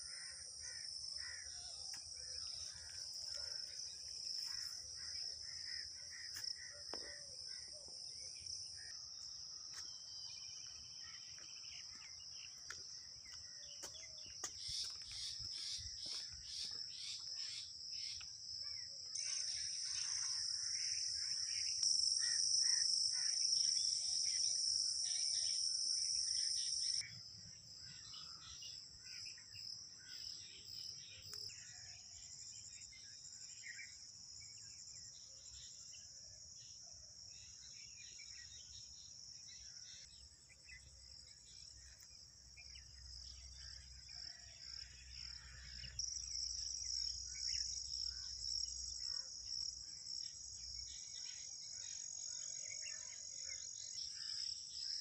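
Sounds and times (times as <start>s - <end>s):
insects trilling: 0.0s - 34.8s.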